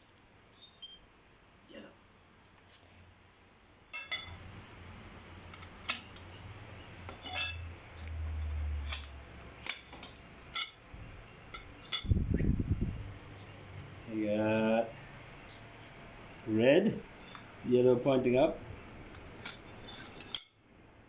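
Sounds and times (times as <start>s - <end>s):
metal tubes clinking: 0.5s - 1.0s, 3.9s - 4.5s, 5.5s - 15.6s, 16.2s - 18.4s, 19.1s - 20.7s.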